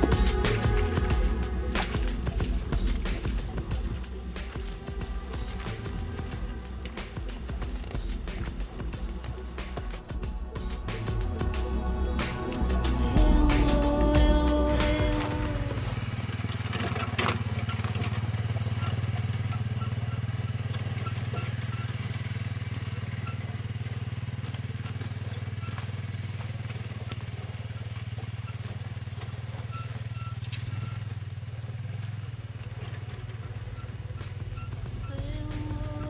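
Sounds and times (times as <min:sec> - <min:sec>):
quad bike engine running: 0:00.0 - 0:36.0.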